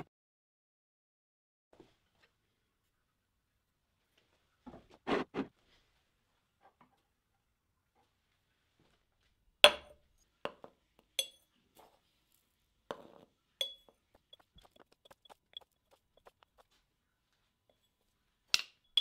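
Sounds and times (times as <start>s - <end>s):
metal objects clinking on ceramic cup: 10.5s - 11.5s, 12.9s - 16.6s.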